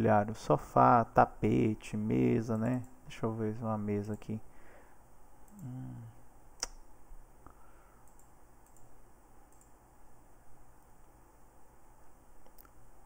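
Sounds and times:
low steady hum: 0.0 - 13.0
computer mouse clicks: 8.0 - 9.8.

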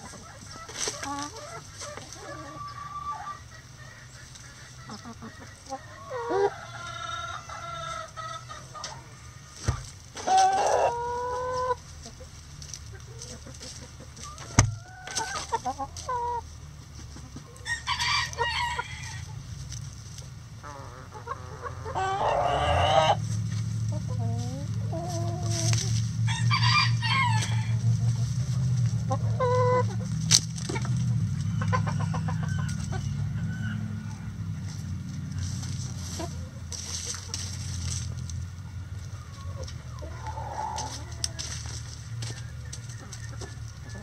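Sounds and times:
chickens clucking: 0.0 - 44.0
rooster crowing: 17.6 - 19.2, 22.0 - 23.2, 26.2 - 27.8, 31.6 - 34.4.

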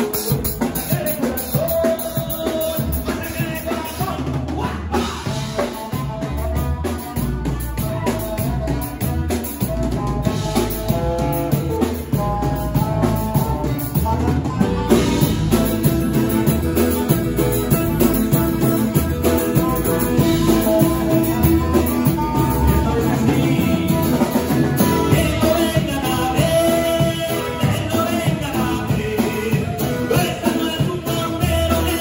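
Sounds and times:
drum beat: 0.0 - 32.0
electric bass: 0.0 - 32.0
twelve-string acoustic guitar: 10.4 - 32.0.

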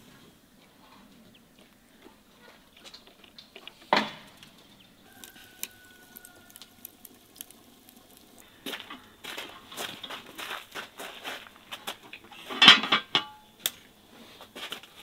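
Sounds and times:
small crackles and ticks: 0.6 - 12.3.

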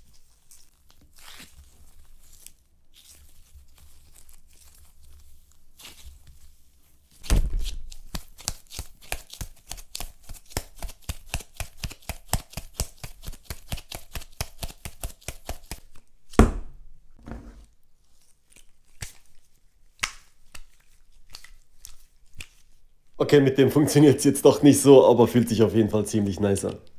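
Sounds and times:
sticky slime squelches: 0.0 - 11.6, 17.9 - 26.9.

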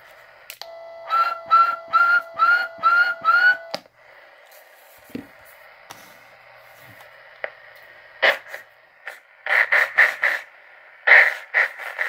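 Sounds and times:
steady tone: 0.7 - 4.4.

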